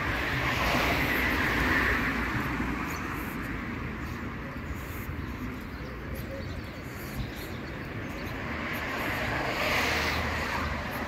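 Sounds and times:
vehicle passing: 0:00.0 - 0:04.4, 0:07.8 - 0:11.0.

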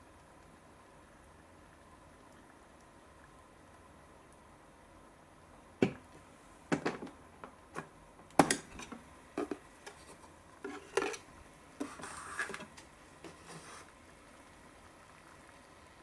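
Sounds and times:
paper cup rustle: 0:08.7 - 0:13.9.

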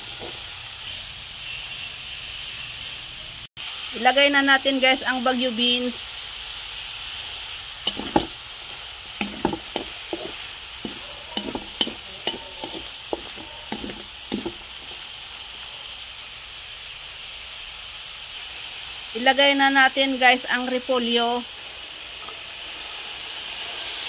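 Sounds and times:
food sizzling in oil: 0:00.0 - 0:24.0
spatula scraping a pan: 0:07.9 - 0:15.2.

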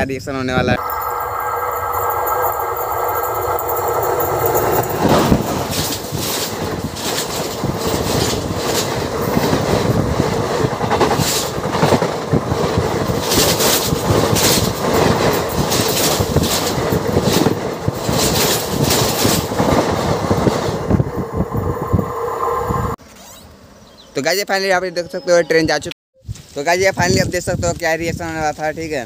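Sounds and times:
train rumbling and clattering: 0:00.7 - 0:23.0
steady hum: 0:00.8 - 0:05.7
train wheels banging: 0:00.8 - 0:23.0.

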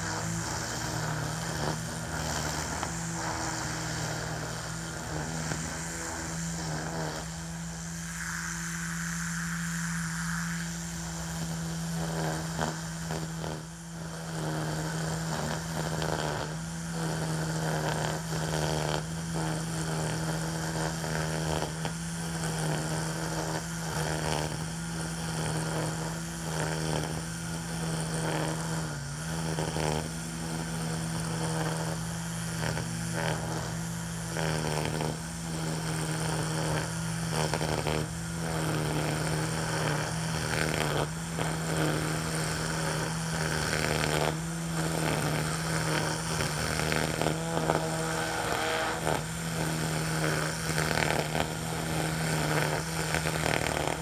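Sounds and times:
string trimmer whining: 0:00.0 - 0:54.0
trimmer line swishing through grass: 0:35.8 - 0:54.0.

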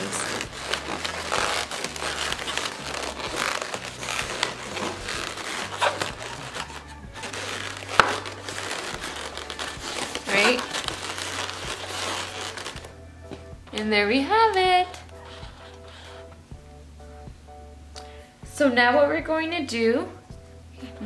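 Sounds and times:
balloons rubbing and crinkling: 0:00.0 - 0:13.5, 0:14.2 - 0:16.5.

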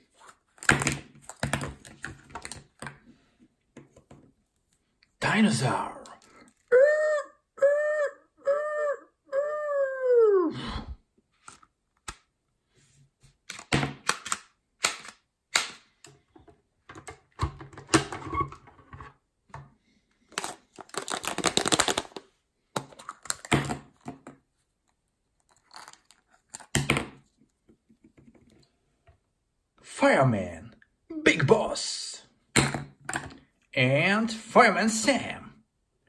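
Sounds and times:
plastic rattle: 0:25.4 - 0:26.8.

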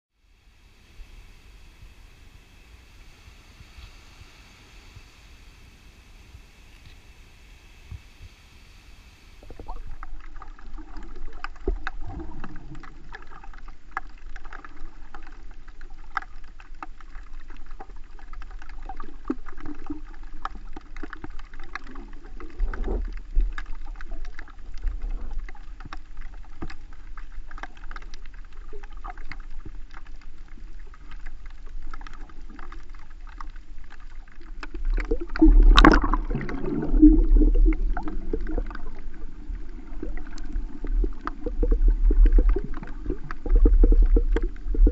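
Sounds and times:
muffled underwater rumble: 0:00.1 - 0:44.9
crackling clicks underwater: 0:01.3 - 0:44.9
rush of water: 0:30.8 - 0:44.9.

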